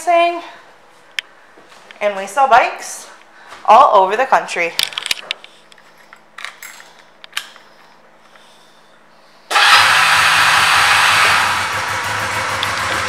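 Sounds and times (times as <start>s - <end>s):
motorcycle engine running loudly: 9.5s - 13.0s.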